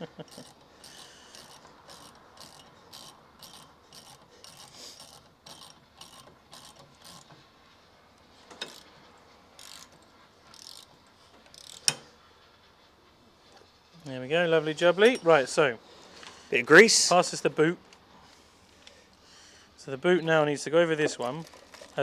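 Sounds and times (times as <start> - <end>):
socket ratchet clicking: 0.3 - 7.4, 8.5 - 9.0, 9.6 - 12.1.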